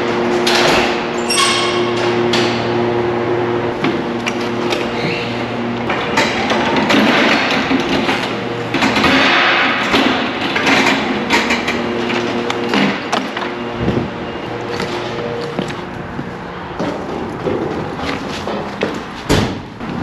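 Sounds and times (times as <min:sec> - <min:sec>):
wheels rushing on concrete: 0:02.0 - 0:20.0
electric motor hum: 0:11.1 - 0:16.8.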